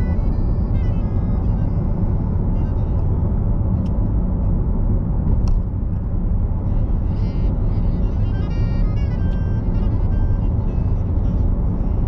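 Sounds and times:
car road and engine noise: 0:00.0 - 0:12.0.

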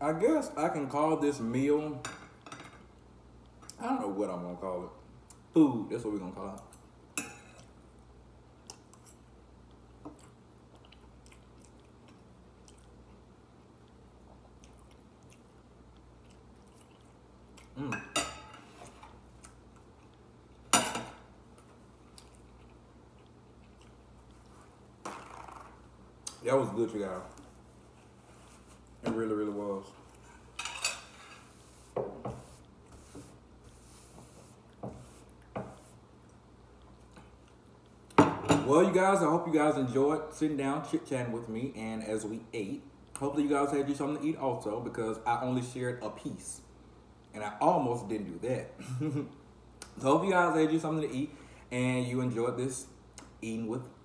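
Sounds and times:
low steady hum: 0:00.0 - 0:54.0
person chewing food: 0:07.5 - 0:17.9, 0:18.8 - 0:20.7, 0:21.4 - 0:25.0, 0:34.6 - 0:38.2.

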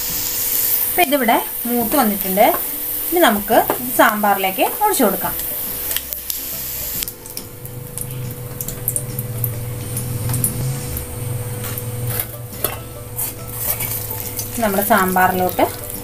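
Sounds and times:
steady low hum: 0:00.0 - 0:16.0
metal cookware clinking: 0:01.2 - 0:06.3, 0:11.5 - 0:16.0.

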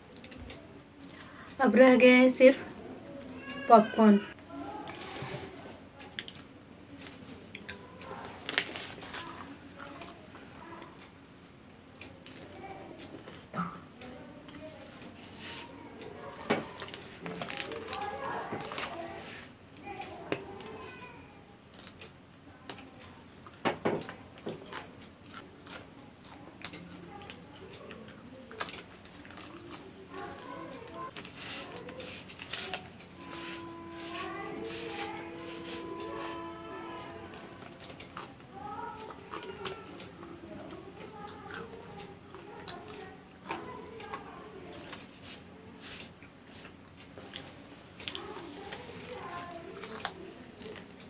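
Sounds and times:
popcorn being crunched and chewed: 0:06.0 - 0:11.0, 0:14.5 - 0:19.5, 0:21.7 - 0:51.0.

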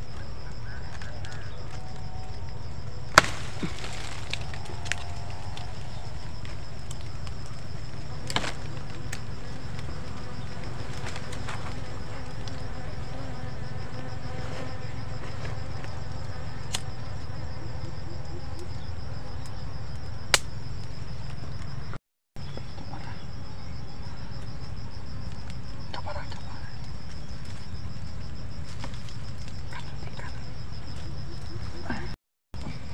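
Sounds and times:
bees buzzing: 0:00.0 - 0:20.3
high-pitched insect trill: 0:00.0 - 0:32.9
twigs snapping: 0:00.8 - 0:07.6, 0:08.2 - 0:09.9, 0:16.6 - 0:16.9.

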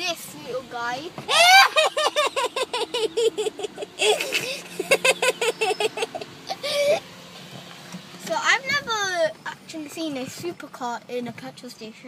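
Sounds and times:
boy laughing hard: 0:01.3 - 0:07.0.

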